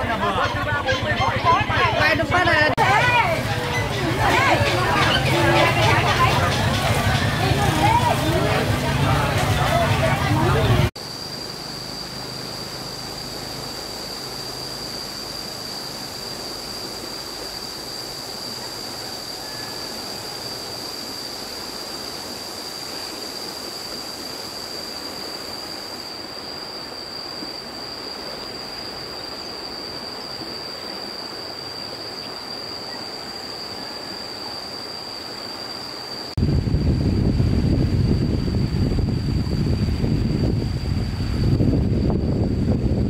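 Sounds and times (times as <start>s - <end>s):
fast-flowing river rushing: 0.1s - 10.9s
wind buffeting microphone: 36.4s - 43.0s.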